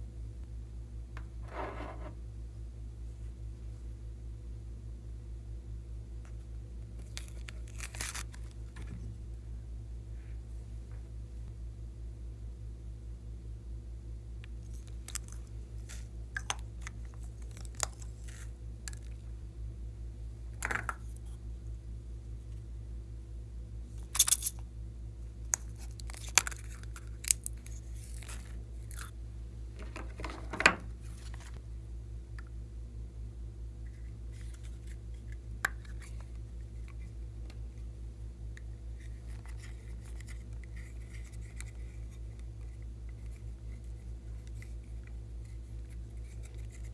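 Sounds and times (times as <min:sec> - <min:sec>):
steady low hum: 0:00.0 - 0:46.9
plastic containers clicking and crinkling: 0:29.8 - 0:31.6.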